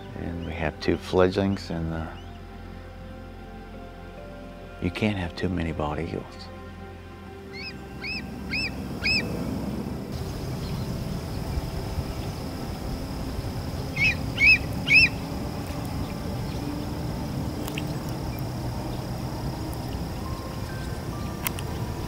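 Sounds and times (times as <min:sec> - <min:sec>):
eagle chirping calls: 0:07.5 - 0:09.4, 0:13.3 - 0:16.9.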